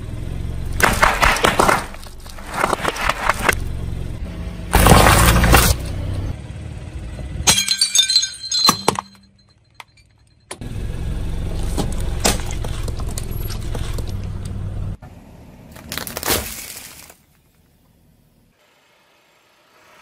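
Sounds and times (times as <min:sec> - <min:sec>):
tyre rolling low rumble: 0:00.4 - 0:06.3, 0:11.3 - 0:15.0
ceramic mug cracking and shattering: 0:07.5 - 0:09.2.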